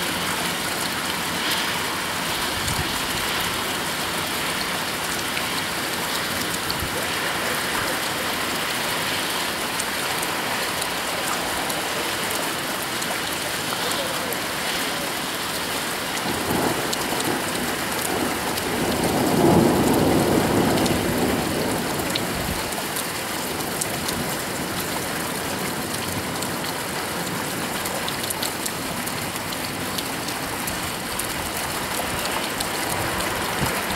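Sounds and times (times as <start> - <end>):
heavy rain: 0.0 - 33.9
thunder rumbling: 16.2 - 22.6.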